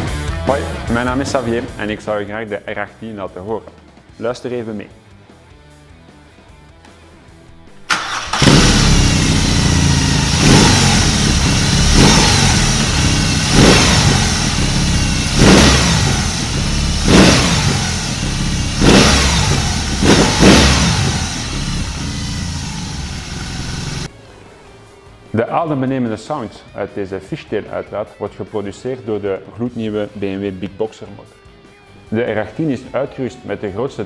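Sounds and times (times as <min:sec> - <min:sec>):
motorcycle engine starting: 0:07.7 - 0:24.1
engine throttle blips: 0:07.9 - 0:24.1.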